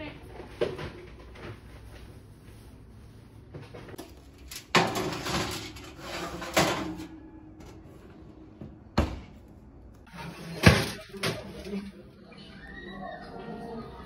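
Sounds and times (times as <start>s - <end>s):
oven rack scraping: 3.9s - 8.0s, 10.0s - 11.9s.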